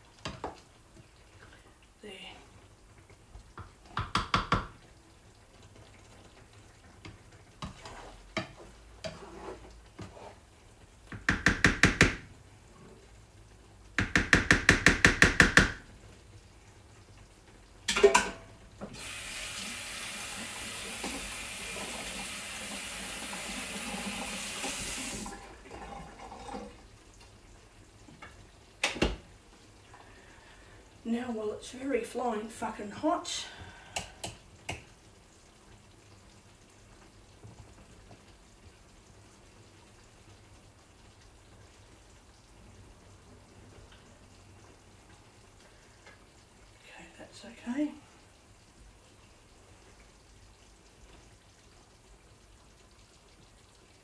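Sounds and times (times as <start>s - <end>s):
kitchen tap running: 3.4s - 4.9s, 11.1s - 12.4s, 13.9s - 15.9s, 17.8s - 26.9s.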